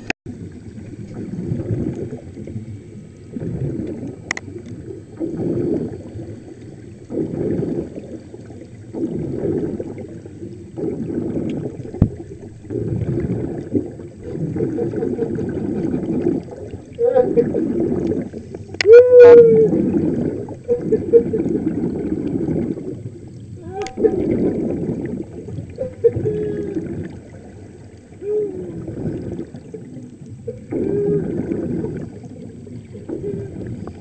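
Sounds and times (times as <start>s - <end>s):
air bubbles gurgling underwater: 0.0s - 34.0s.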